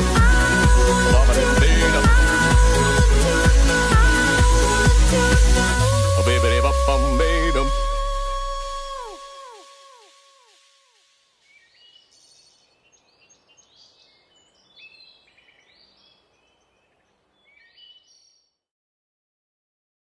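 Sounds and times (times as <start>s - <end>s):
faint high bird-like chirps: 11.0s - 18.6s.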